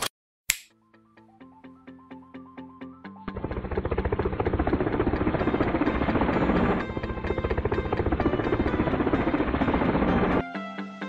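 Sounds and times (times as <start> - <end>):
fan whirring: 3.3 - 10.4.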